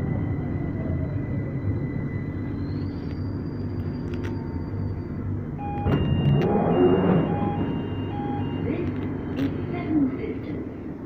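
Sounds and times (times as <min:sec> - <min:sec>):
train rumble with motor whine: 0:00.0 - 0:11.0
short electronic beeps: 0:05.6 - 0:09.7.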